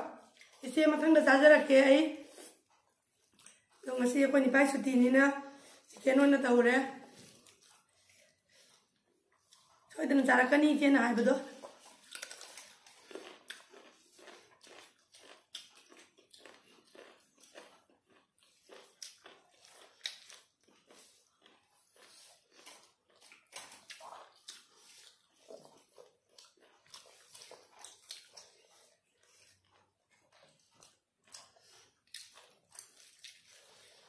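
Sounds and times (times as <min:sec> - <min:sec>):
chewing and wet mouth clicks: 0:02.4 - 0:03.8, 0:11.6 - 0:34.0.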